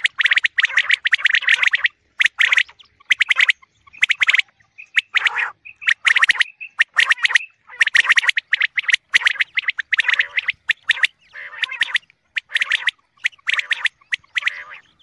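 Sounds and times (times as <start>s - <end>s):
soft bird chirps: 0.0s - 15.0s.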